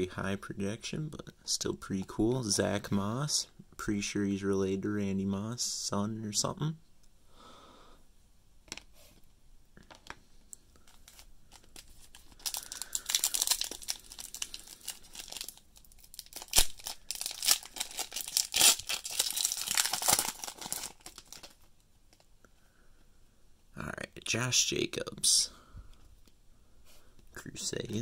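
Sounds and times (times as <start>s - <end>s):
foil wrapper crinkling: 10.8s - 22.3s
foil wrapper tearing: 11.1s - 21.7s.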